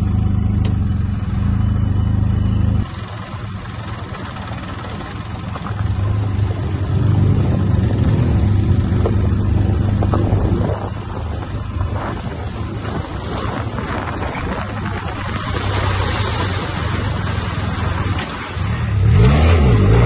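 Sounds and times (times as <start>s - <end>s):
motorcycle engine running: 0.0s - 15.8s
loose stones under tyres: 3.1s - 18.7s.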